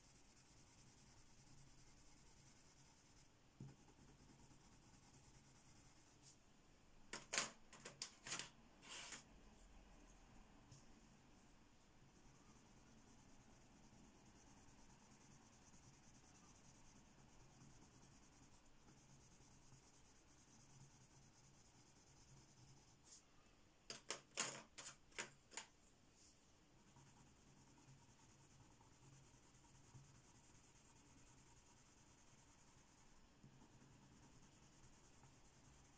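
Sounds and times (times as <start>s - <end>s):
pencil scratching on paper: 0.0s - 6.4s, 12.1s - 23.2s, 26.2s - 35.9s.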